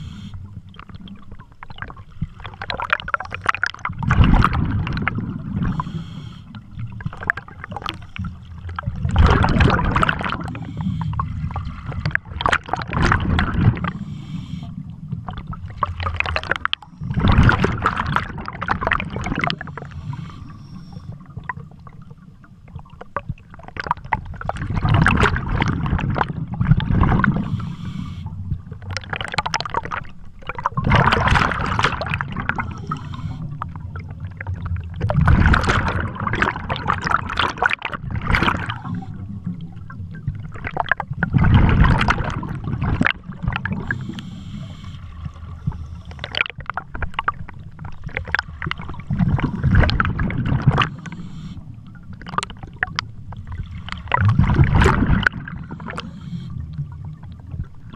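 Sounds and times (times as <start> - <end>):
breathing through regulator: 0.0 - 0.5, 5.6 - 6.6, 7.8 - 8.6, 10.2 - 11.8, 13.8 - 15.0, 19.7 - 21.2, 27.2 - 28.4, 32.4 - 33.6, 43.7 - 46.4, 50.7 - 51.8, 55.6 - 56.7
underwater bubbles gurgling: 0.0 - 57.9.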